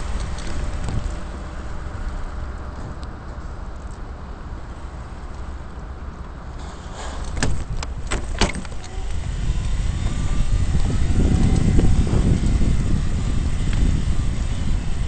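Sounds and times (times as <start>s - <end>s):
vehicle rolling over paving stones: 0.0s - 9.2s.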